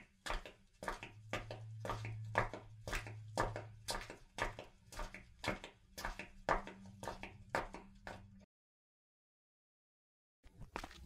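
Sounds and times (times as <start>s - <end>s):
footsteps with heel strikes: 0.3s - 8.2s.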